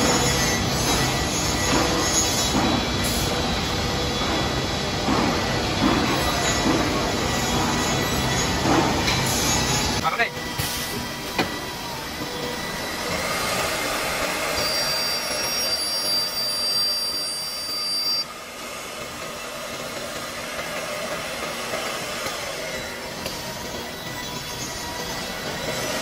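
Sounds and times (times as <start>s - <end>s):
high machine whine: 0.0s - 26.0s
drilling machine spindle hiss: 10.5s - 19.3s.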